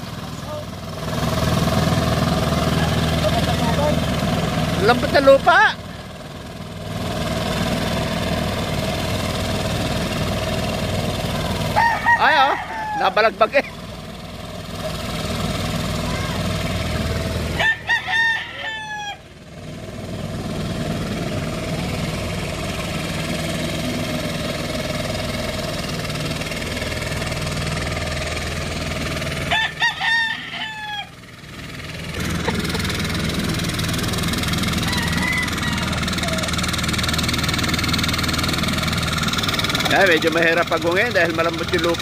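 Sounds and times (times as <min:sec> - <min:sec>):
small tractor engine running: 0:00.0 - 0:42.0
rooster crowing: 0:11.6 - 0:13.4, 0:17.5 - 0:19.3, 0:29.4 - 0:31.3, 0:34.6 - 0:36.7.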